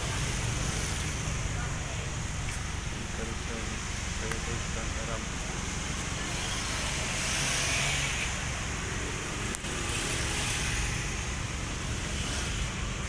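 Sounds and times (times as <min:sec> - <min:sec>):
road traffic rumble: 0:00.0 - 0:13.0.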